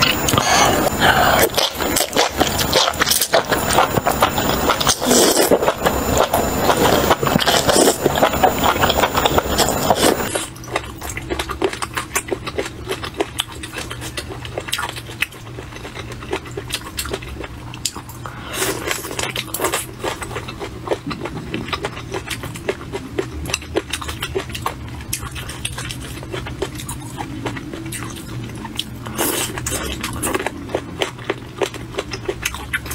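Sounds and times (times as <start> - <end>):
slurping: 0.0 - 10.5
chewing and biting: 0.0 - 32.9.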